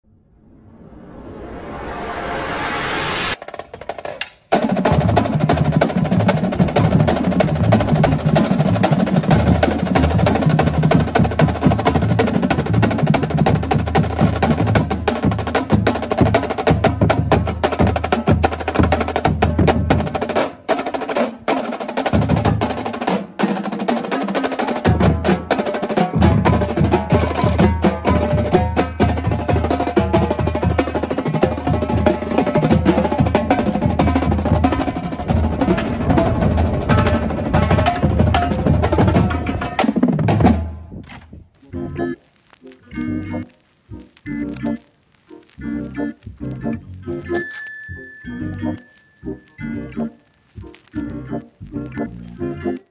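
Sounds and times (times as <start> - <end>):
snare and tenor drums: 3.4 - 40.9
bass drums: 4.6 - 20.6, 22.0 - 23.0, 24.8 - 41.9, 45.5 - 47.3.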